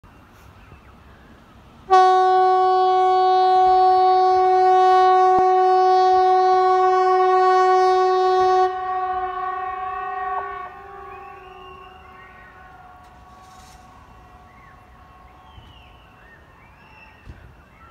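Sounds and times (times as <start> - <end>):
warning siren steady tone: 2.7 - 16.2.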